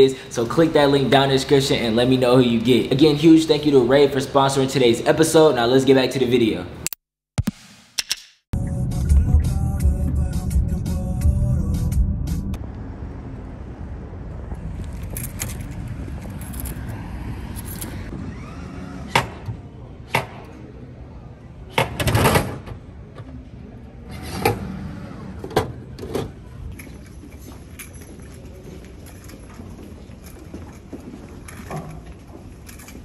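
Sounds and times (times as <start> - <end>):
steady background noise: 12.6 - 33.0.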